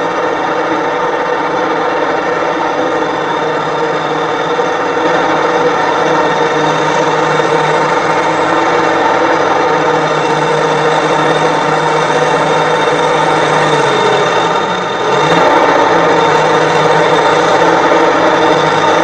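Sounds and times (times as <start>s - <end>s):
diesel engine droning under load: 0.0s - 19.0s.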